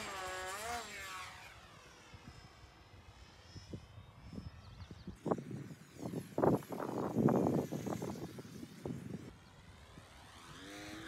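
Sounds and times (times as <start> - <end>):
rc plane motor whine: 0.0 - 11.0.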